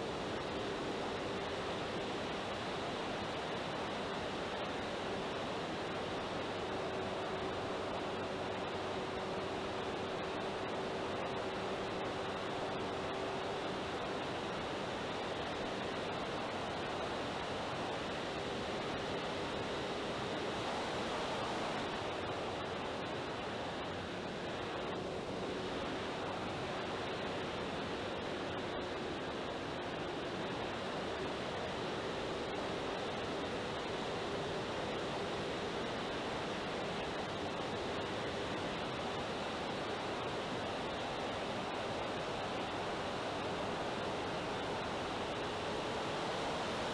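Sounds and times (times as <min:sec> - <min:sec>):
airflow and propeller noise: 0:00.0 - 0:46.9.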